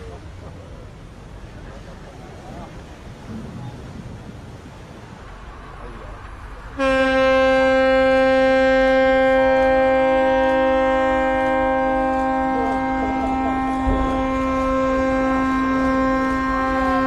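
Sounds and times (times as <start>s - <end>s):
rushing water and wind: 0.0s - 17.0s
ship's horn blast: 6.7s - 17.0s.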